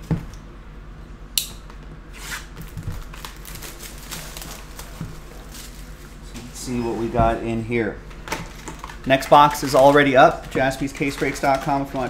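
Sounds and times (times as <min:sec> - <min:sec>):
plastic shrink wrap crinkling: 0:02.2 - 0:06.6, 0:08.2 - 0:12.0.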